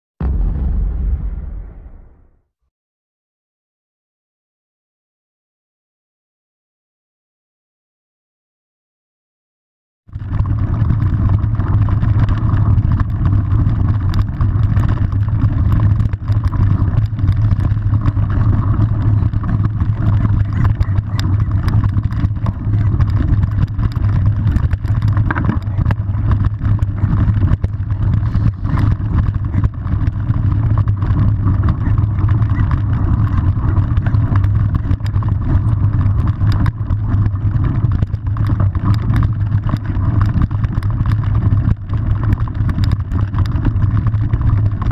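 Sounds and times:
bike clicks and rattles: 10.1 - 44.9
tyres on dirt: 10.2 - 44.7
wind on microphone: 10.2 - 44.9.

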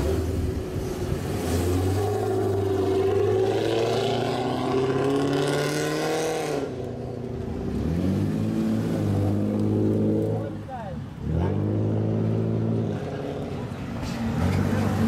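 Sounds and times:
car engine pulling away: 0.0 - 10.5.

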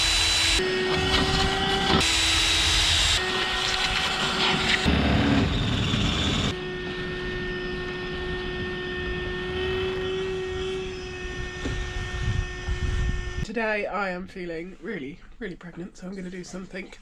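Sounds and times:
power tool motor running: 0.0 - 13.4.

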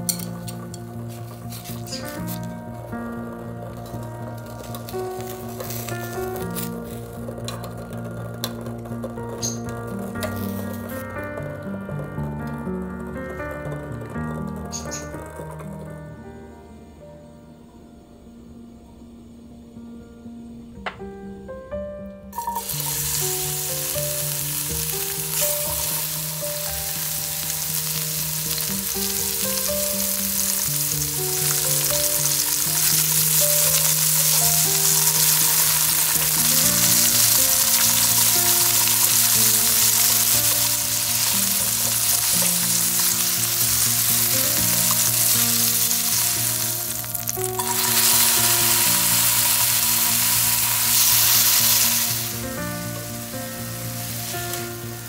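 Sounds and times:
vegetables sizzling in a pan: 0.0 - 7.8, 8.4 - 11.0, 22.4 - 55.0
soft background music: 0.0 - 55.0
chopsticks stirring in a pan: 22.4 - 52.4.

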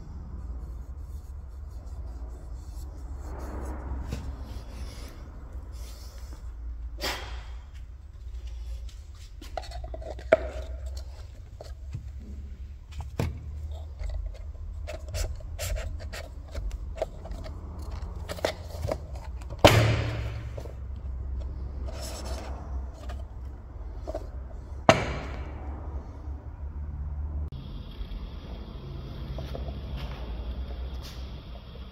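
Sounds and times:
loud knock: 24.9 - 25.6.

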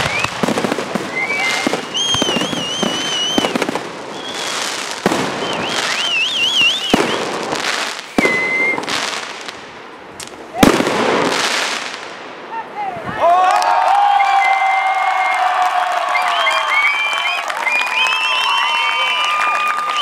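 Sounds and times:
whistling fireworks: 0.0 - 9.6, 16.0 - 20.0
fireworks bursting with bangs: 0.0 - 12.6.

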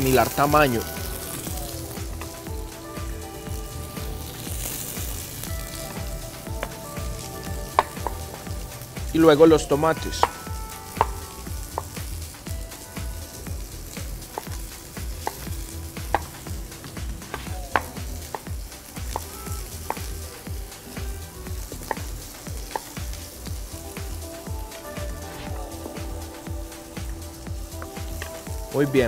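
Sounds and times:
vegetables sizzling in oil: 0.0 - 29.0.

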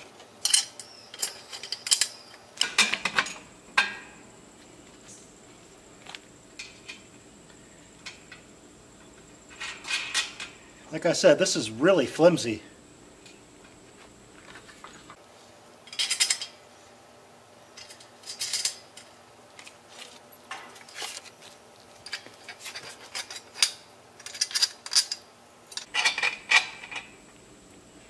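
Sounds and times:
metal bolts and nuts clinking: 0.0 - 4.1, 9.5 - 10.6, 15.8 - 16.6, 17.7 - 21.2, 22.0 - 27.2.

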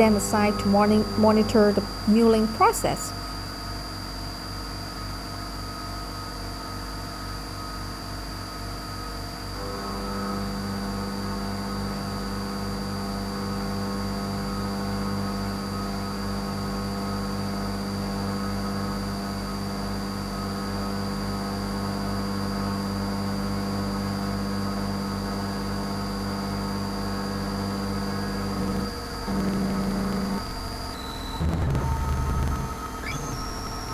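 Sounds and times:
mill cutting metal: 28.0 - 33.9.

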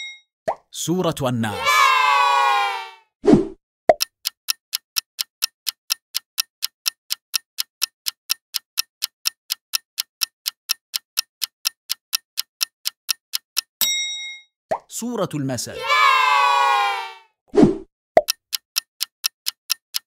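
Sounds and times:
clock-like timer ticks: 3.9 - 14.0, 18.2 - 20.0.

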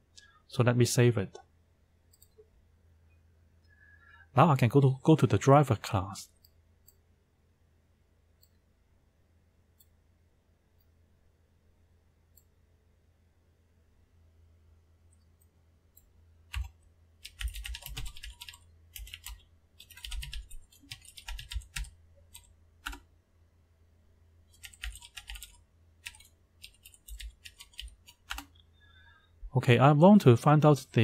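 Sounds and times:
faint low hum: 0.0 - 31.0
typing on computer keyboard: 16.5 - 23.1, 24.6 - 28.5.

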